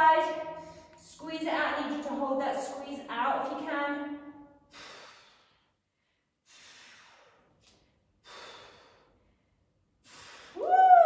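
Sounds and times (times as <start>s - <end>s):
woman breathing hard: 4.7s - 10.7s.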